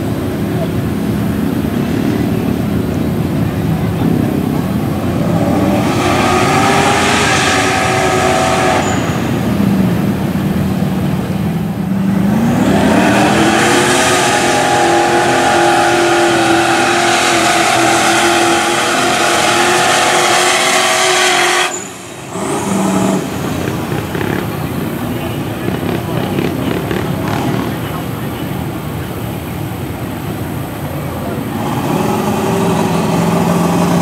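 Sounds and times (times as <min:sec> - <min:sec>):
tires churning through mud: 0:00.0 - 0:34.0
truck engine revving under load: 0:00.0 - 0:34.0.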